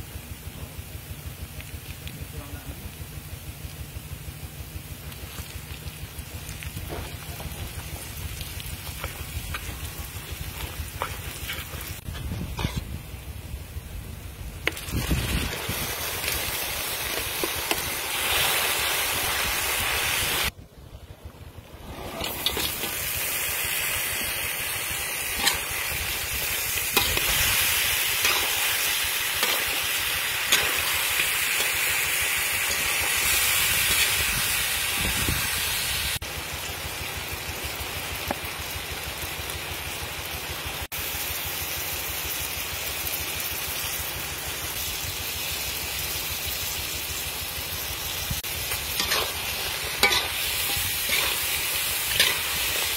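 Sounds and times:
food sizzling in a wok: 0.0 - 20.5, 21.8 - 52.9
metal ladle scraping wok: 10.5 - 13.0, 21.8 - 23.1, 24.8 - 34.1, 48.4 - 52.9.

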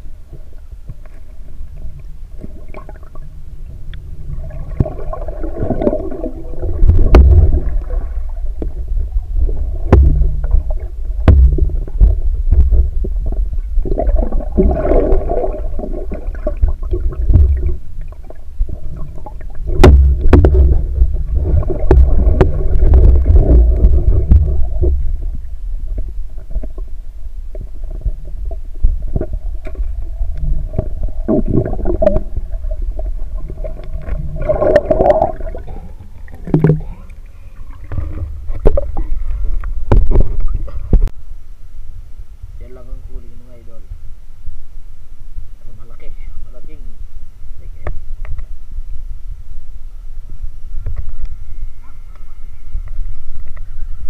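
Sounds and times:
water gurgling: 0.0 - 41.1
underwater rumble of moving water: 0.0 - 54.0
sharp clicks underwater: 4.7 - 8.8, 9.8 - 26.9, 27.5 - 32.4, 33.0 - 41.1, 47.8 - 48.5, 52.1 - 53.7.

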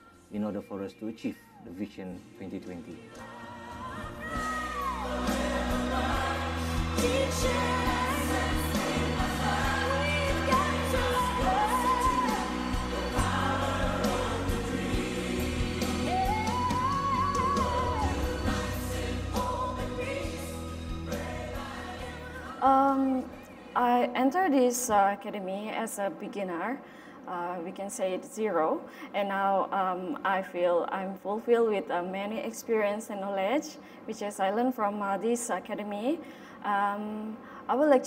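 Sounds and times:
song with singing and beat: 2.8 - 23.7.

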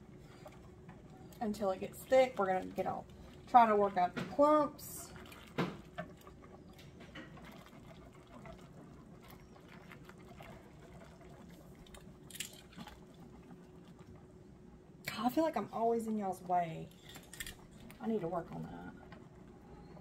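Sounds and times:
liquid swishing: 0.0 - 14.4.

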